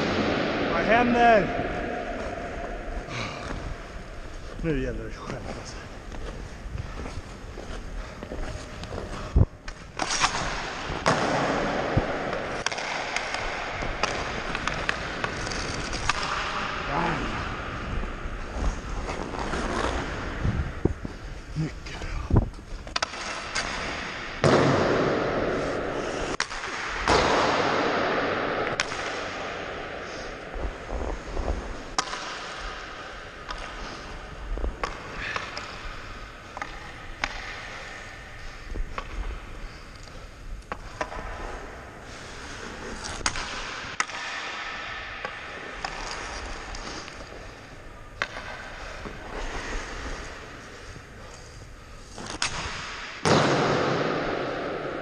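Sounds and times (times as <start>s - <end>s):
stick striking pucks: 8.2s - 17.0s, 22.8s - 55.0s
pucks hitting boards: 8.6s - 17.6s, 22.8s - 30.4s, 31.1s - 39.6s, 40.6s - 55.0s
skate blades scraping on ice: 12.4s - 17.3s, 18.0s - 21.3s.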